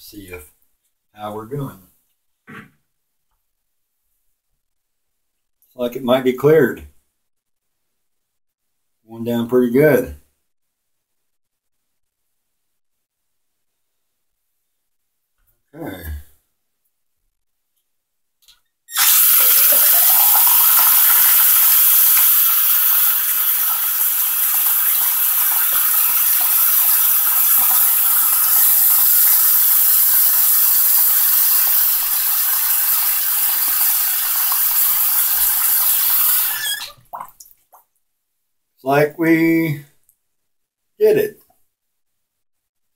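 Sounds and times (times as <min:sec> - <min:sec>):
faucet water splashing into sink: 0:18.9 - 0:37.9
water pouring down drain: 0:18.9 - 0:37.9.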